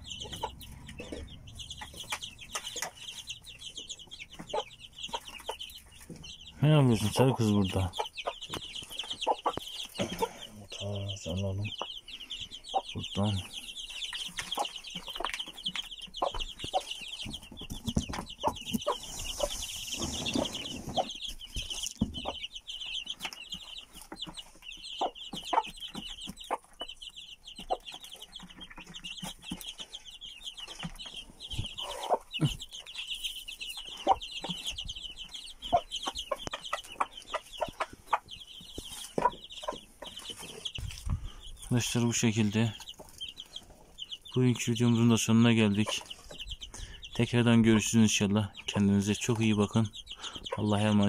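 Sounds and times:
chicks peeping: 0.0s - 51.0s
hen clucking: 0.0s - 51.0s.

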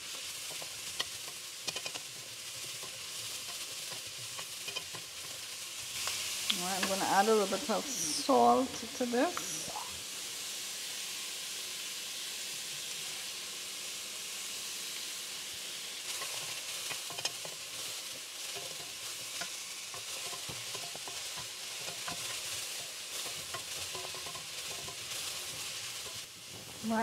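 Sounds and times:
vegetables sizzling in a pot: 0.0s - 27.0s
wooden spoon stirring and scraping: 0.1s - 7.8s, 16.1s - 26.8s.

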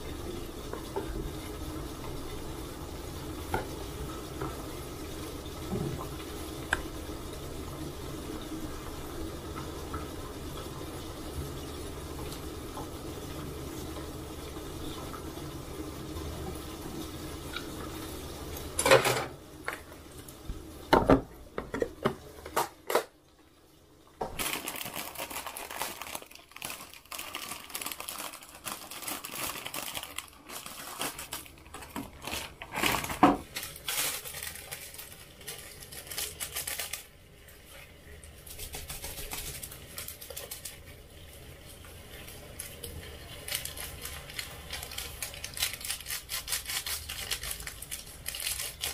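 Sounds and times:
food sizzling: 0.0s - 22.6s, 24.2s - 48.9s
crinkling and rustling: 24.2s - 37.1s, 38.4s - 41.0s, 42.1s - 48.9s.

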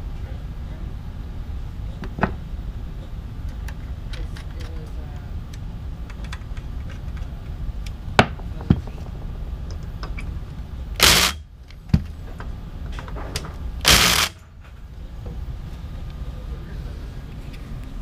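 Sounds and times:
cordless drill driving screws: 11.0s - 11.4s, 13.9s - 14.4s.

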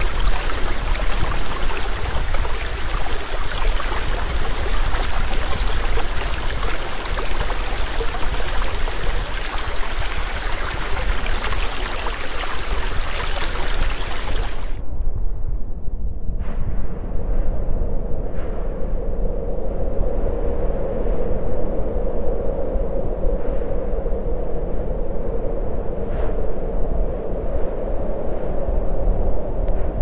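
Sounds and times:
waterfall rushing into pool: 0.0s - 14.8s.

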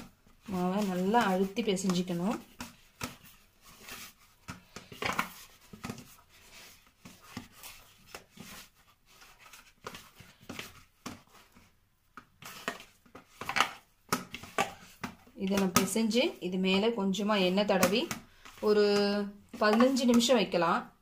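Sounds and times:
hands kneading dough: 0.0s - 21.0s.

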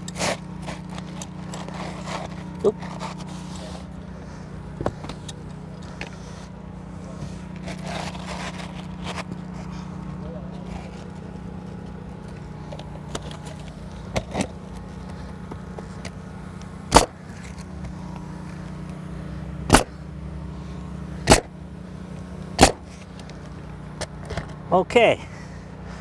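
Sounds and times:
steady low hum: 0.0s - 26.0s
nail gun firing: 16.9s - 17.2s, 19.7s - 19.9s, 21.3s - 21.5s, 22.6s - 22.9s.

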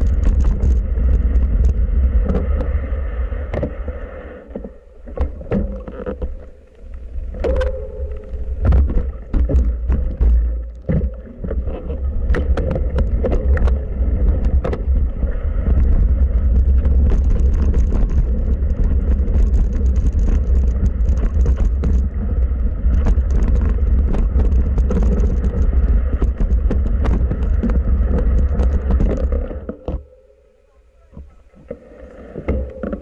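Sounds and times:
bike clicks and rattles: 0.0s - 2.4s, 15.8s - 29.4s
wind rumble on microphone: 0.0s - 30.3s.

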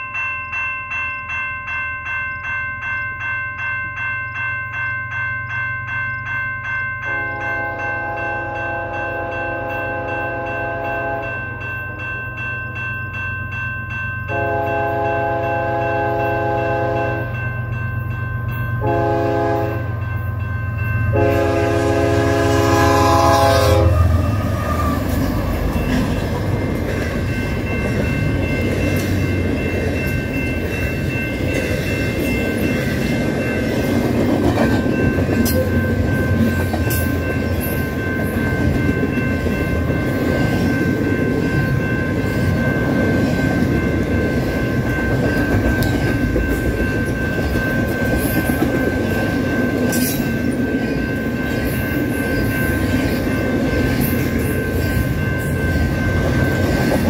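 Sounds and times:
passing train rumble and rattle: 0.0s - 57.0s
railroad crossing bell ringing: 0.0s - 57.0s
locomotive horn: 7.1s - 11.4s, 14.3s - 17.3s, 18.8s - 19.9s, 21.1s - 25.1s.

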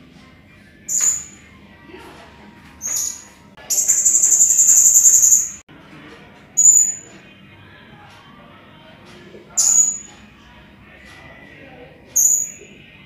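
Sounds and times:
parrot calling in shrill notes: 0.9s - 1.4s, 2.8s - 5.6s, 6.6s - 7.0s, 9.6s - 10.1s, 12.2s - 12.6s.

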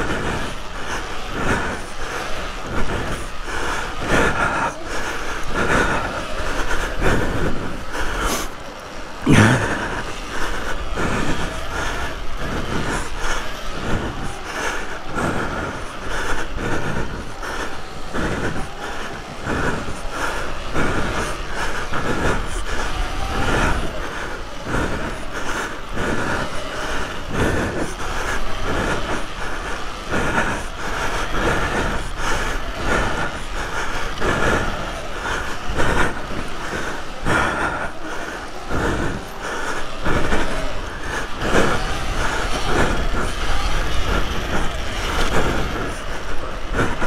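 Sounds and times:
off-road bike clattering over bumps: 0.0s - 47.0s.

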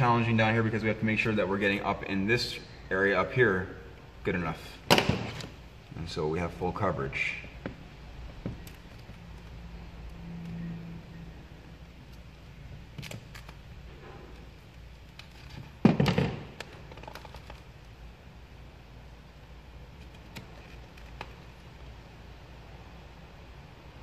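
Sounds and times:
vinyl film handled on plastic: 11.9s - 18.0s, 19.8s - 21.9s.

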